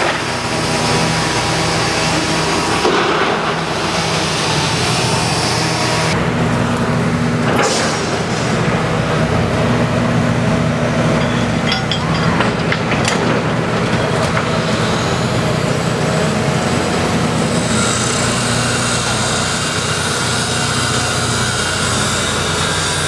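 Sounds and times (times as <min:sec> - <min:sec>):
diesel machinery running: 0:00.0 - 0:23.0
metal clanks: 0:11.1 - 0:13.6.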